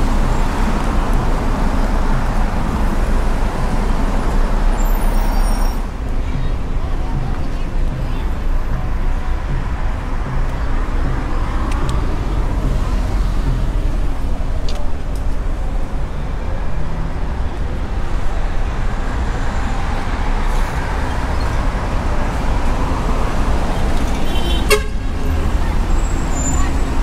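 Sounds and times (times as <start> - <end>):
faint voices of passers-by: 0.0 - 27.0
passing cars and buses: 0.0 - 27.0.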